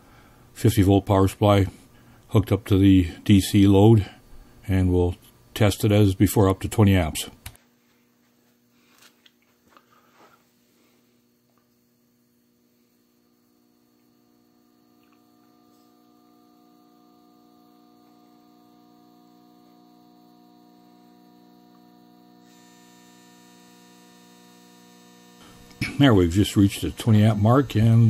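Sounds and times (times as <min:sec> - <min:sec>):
faint mains hum: 0:00.0 - 0:28.0.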